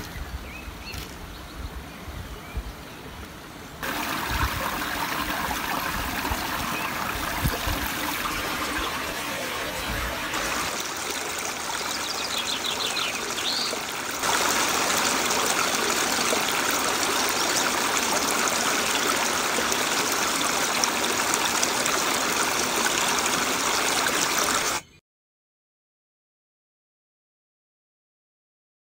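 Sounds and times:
creek trickling over rocks: 0:03.8 - 0:24.8.

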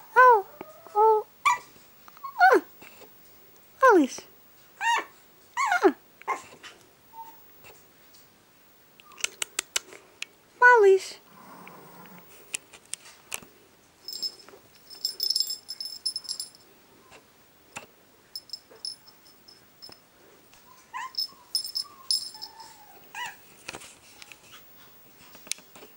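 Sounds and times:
jingling toy rattling: 0:14.1 - 0:16.7, 0:18.3 - 0:20.0, 0:21.0 - 0:22.8.

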